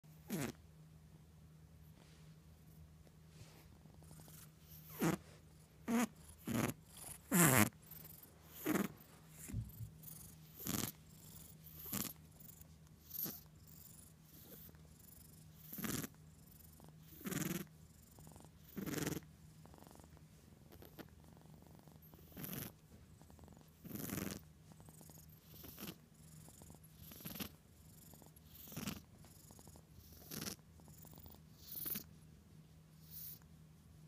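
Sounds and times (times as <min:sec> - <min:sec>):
kitten purring: 0:00.1 - 0:00.6, 0:03.4 - 0:32.2, 0:32.9 - 0:33.5.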